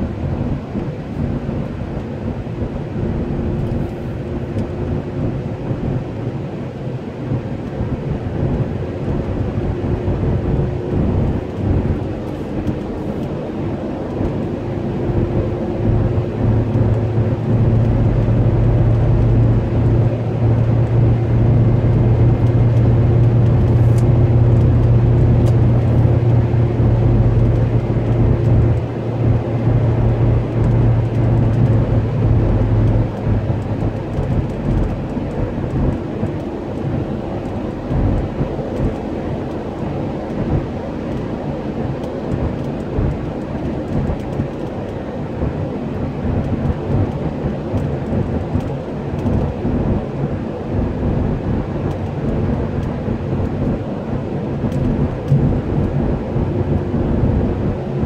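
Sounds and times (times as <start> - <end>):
car tyre and engine rumble: 0.0 - 58.0
low hum: 7.3 - 39.6.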